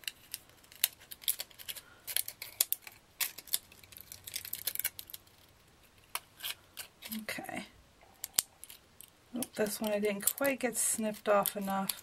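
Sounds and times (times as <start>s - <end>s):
scissors snipping plastic: 9.4s - 12.0s.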